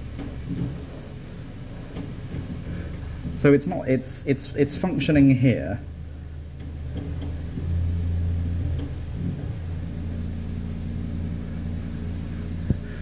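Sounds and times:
deep organ bass note: 7.0 - 13.0.

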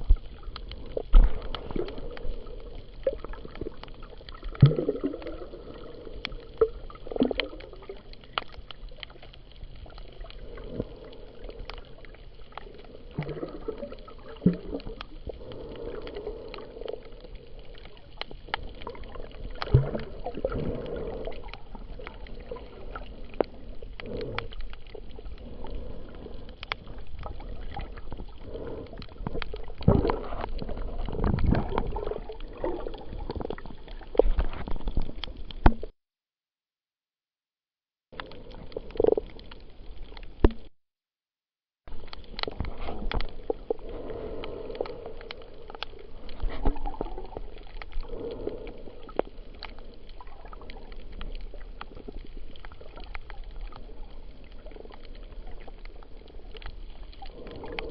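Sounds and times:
muffled underwater water wash: 0.0 - 35.9, 38.1 - 40.7, 41.6 - 57.9
sharp underwater clicks: 14.3 - 35.9, 41.9 - 53.9.

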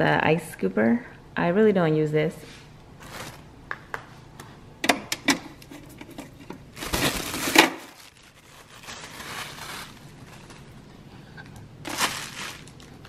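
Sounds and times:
plastic rustling scrape: 2.5 - 3.5, 5.7 - 11.1, 11.8 - 13.0.

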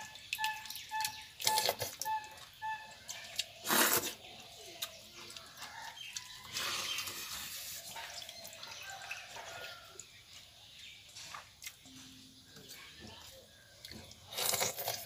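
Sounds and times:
eating by hand from metal bowl: 11.0 - 15.0.

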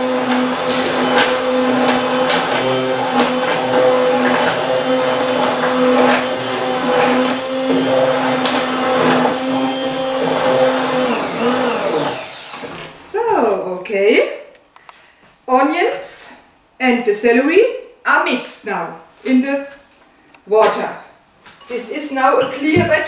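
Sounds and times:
stick blender motor running: 0.0 - 12.8.

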